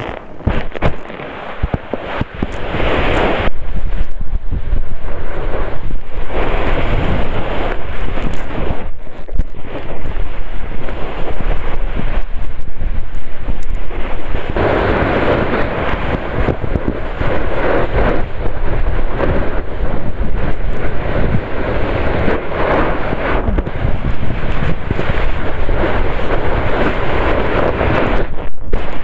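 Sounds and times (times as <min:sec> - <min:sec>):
snowboard scraping over snow: 0:00.0 - 0:29.0
wind buffeting microphone: 0:00.0 - 0:29.0.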